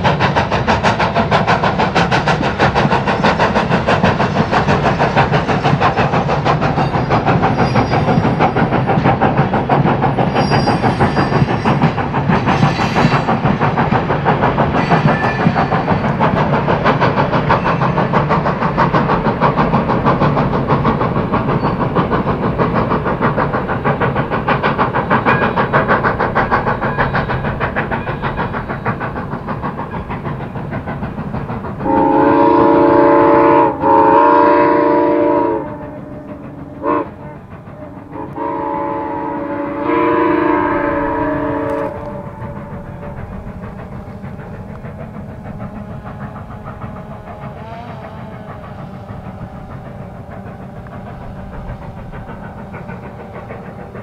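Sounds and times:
steam locomotive exhaust beat: 0.0s - 54.0s
chime steam whistle: 6.6s - 8.6s, 10.2s - 11.9s, 14.8s - 16.2s, 31.8s - 37.5s, 38.1s - 43.2s.

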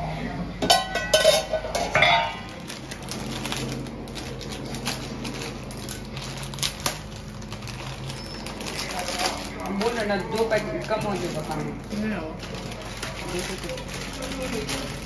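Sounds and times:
low steady hum: 0.0s - 15.0s
metal pan lid clattering: 0.6s - 2.5s
plastic packet crinkling and tearing: 2.5s - 15.0s.

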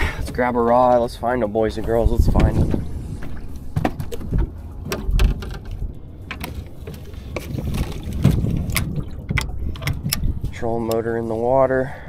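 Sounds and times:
low steady rumble: 0.0s - 12.0s
metal and plastic clicks and knocks: 3.8s - 7.5s.

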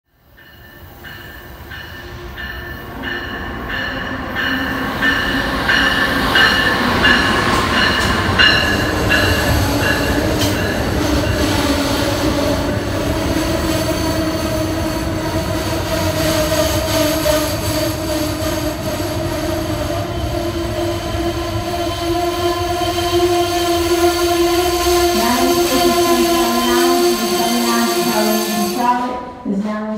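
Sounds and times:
train pulling into station: 0.1s - 29.9s
train wheels squealing: 19.9s - 29.0s.

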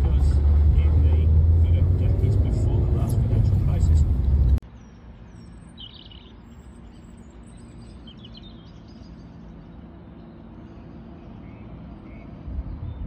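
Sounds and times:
low outdoor rumble: 0.0s - 4.6s
birds chirping: 0.0s - 13.0s.

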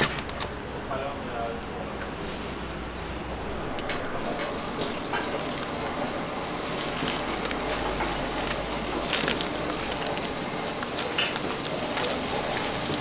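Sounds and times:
paper wrapper crinkling: 4.2s - 13.0s.

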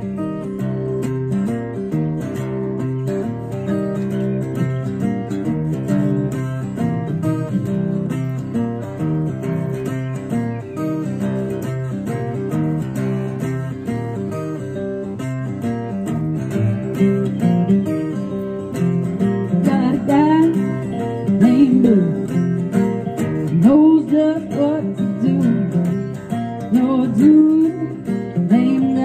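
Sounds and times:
acoustic guitars strummed: 0.0s - 29.0s
woman singing: 19.5s - 22.6s, 23.3s - 29.0s.

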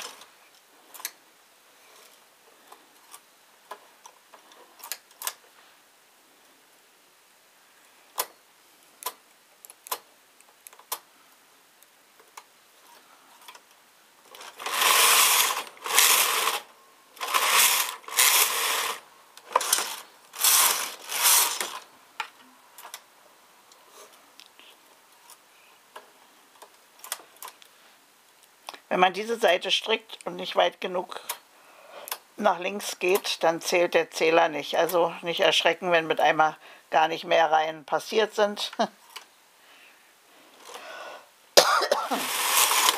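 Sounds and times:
knitting machine carriage rattling: 14.3s - 16.6s, 17.2s - 21.8s, 42.2s - 42.9s.

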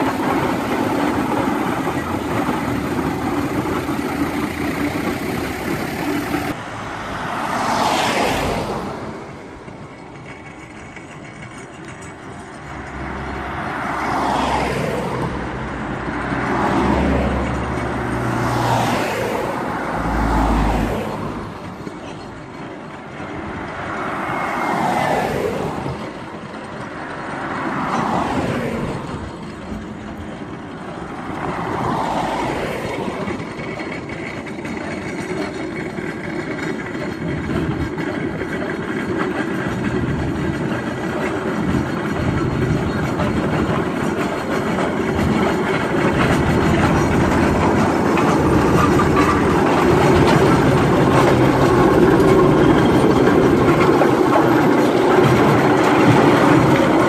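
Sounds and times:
steam engine running: 0.0s - 6.6s, 28.8s - 57.0s
steel rolls rumbling on tarmac: 0.0s - 57.0s
vehicles swishing past: 0.0s - 57.0s.

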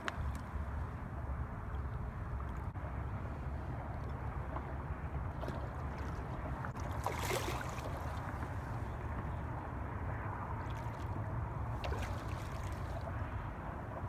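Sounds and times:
steady low rumble: 0.0s - 14.0s
water sloshing against rocks: 4.5s - 9.3s, 11.8s - 13.1s
fish thrashing and splashing: 5.4s - 8.4s.

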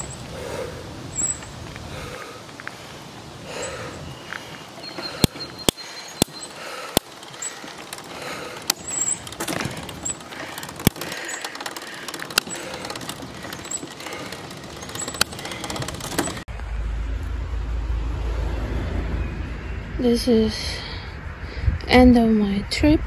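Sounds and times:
bicycle clicks and rattles: 0.0s - 0.6s, 4.4s - 16.5s
bicycle rolling: 0.0s - 16.7s.

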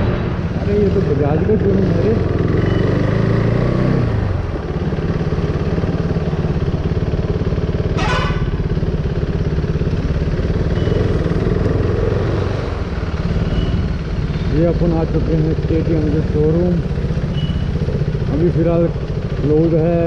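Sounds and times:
motorcycle engine running: 0.0s - 20.0s
short high beep: 17.3s - 17.7s.

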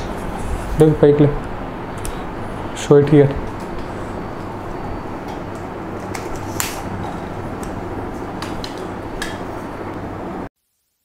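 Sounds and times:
steady background hiss: 0.0s - 11.0s.

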